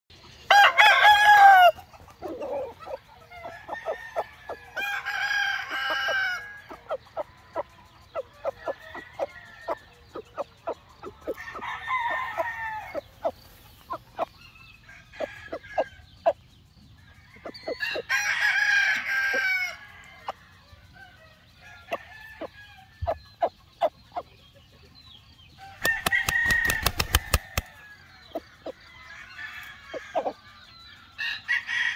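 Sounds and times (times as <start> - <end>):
roosters crowing: 0.4 - 16.3, 17.1 - 23.8, 25.6 - 31.9
chicken clucks: 1.3 - 5.0, 5.7 - 14.4, 19.4 - 27.7, 29.5 - 30.5.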